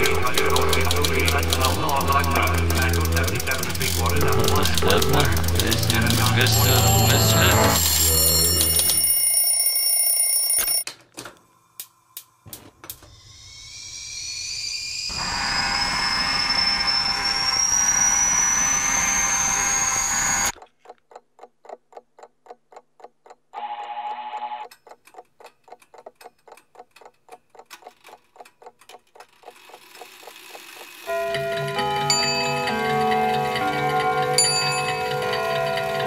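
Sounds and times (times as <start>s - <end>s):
rising high whine: 0.0s - 9.0s, 13.0s - 20.6s
clock-like ticking: 0.0s - 9.3s, 20.5s - 36.0s
brief ringing tone: 6.4s - 10.8s
rushing noise: 13.4s - 20.5s.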